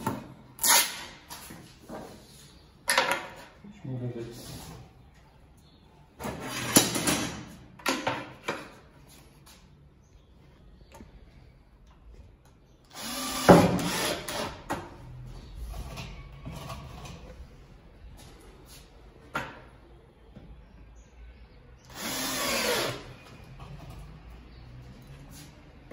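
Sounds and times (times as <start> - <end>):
cordless drill driving screw: 12.9 - 14.6, 21.9 - 23.1.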